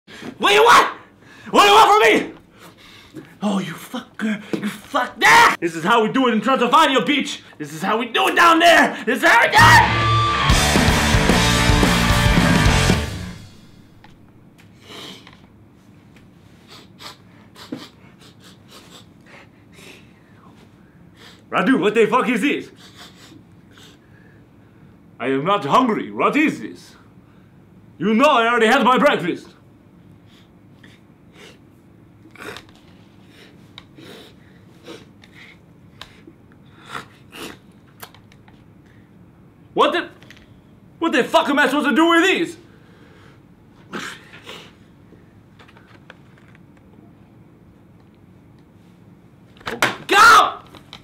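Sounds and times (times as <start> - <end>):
man sniffing: 14.8 - 15.3, 16.5 - 20.5, 22.8 - 24.0
man sniffing and snorting: 14.8 - 15.3, 16.5 - 20.1, 32.3 - 37.7
heavy breathing: 16.5 - 21.5.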